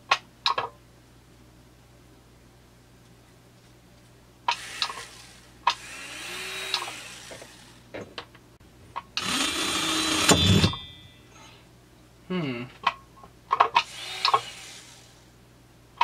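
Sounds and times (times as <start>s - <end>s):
electric rotary tool running: 4.5s - 7.9s, 9.2s - 10.3s, 13.8s - 15.3s
tool handling clicks: 6.6s - 7.6s, 12.8s - 14.5s.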